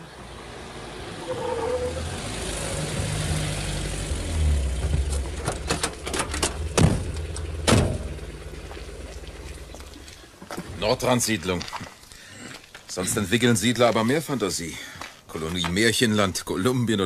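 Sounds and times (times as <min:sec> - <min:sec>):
car engine idling: 0:00.0 - 0:10.2
car doors slamming: 0:04.8 - 0:08.6.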